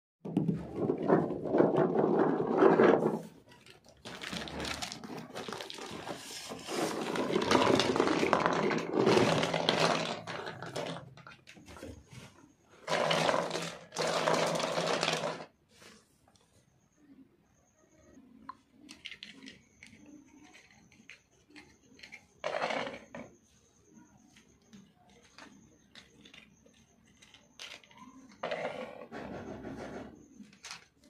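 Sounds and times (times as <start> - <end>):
plastic toys rattling: 0.6 - 11.8, 12.8 - 15.5, 18.8 - 23.3, 25.1 - 29.0.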